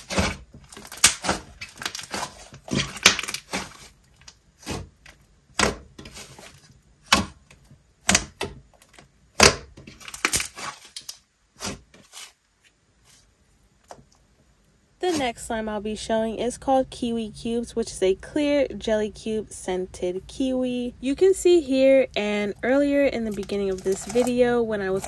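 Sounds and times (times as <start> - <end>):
slime clicking and crackling: 0.0 - 5.8, 8.0 - 11.8, 22.4 - 25.0.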